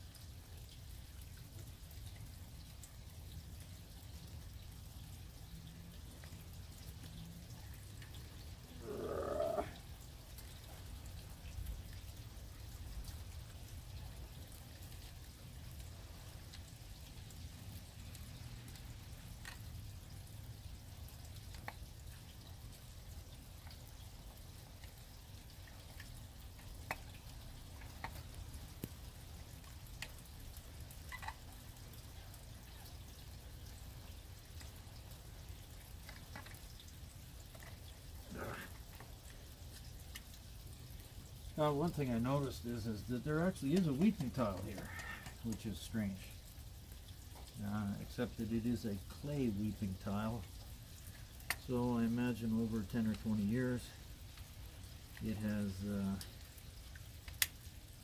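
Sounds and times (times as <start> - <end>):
light ticks and drips: 0.0 - 58.0.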